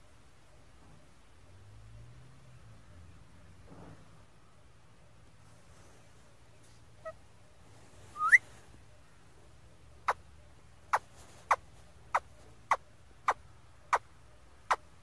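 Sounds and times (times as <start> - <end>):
parakeet rising whistle: 8.2 - 8.4.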